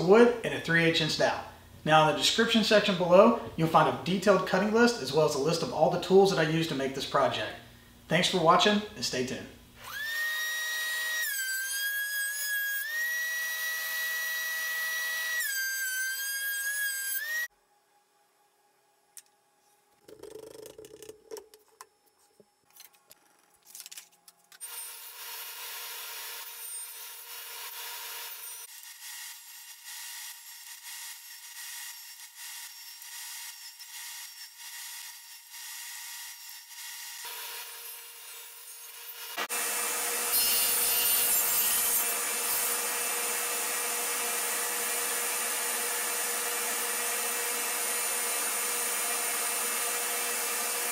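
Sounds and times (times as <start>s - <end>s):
table saw cutting wood: 9.8s - 17.5s, 24.6s - 50.9s
thickness planer whining: 37.2s - 50.9s.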